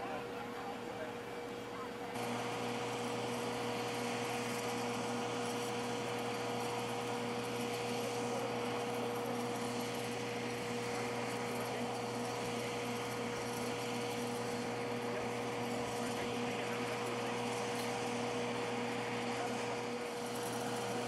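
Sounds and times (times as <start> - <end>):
machine hum: 0.0 - 21.0.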